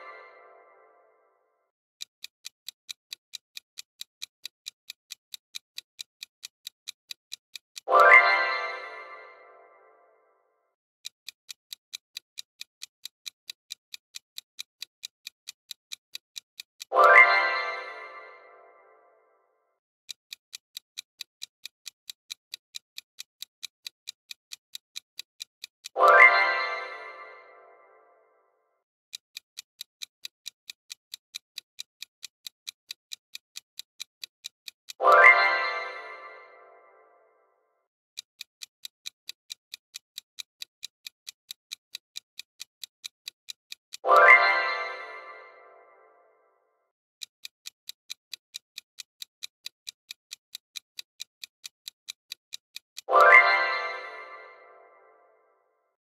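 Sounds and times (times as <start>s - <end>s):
timer ticking: 0.0s - 0.9s, 1.9s - 10.1s, 10.9s - 19.1s, 20.0s - 28.3s, 29.1s - 37.3s, 38.1s - 55.3s
bright chime: 53.1s - 55.2s.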